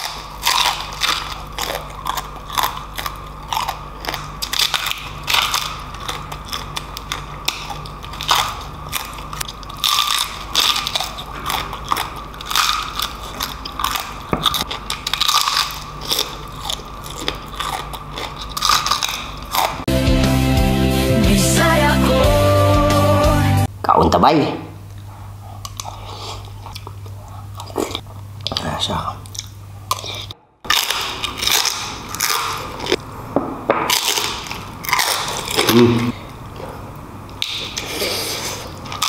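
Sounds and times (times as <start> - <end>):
crispy skin crunching under bites: 0.0 - 19.8.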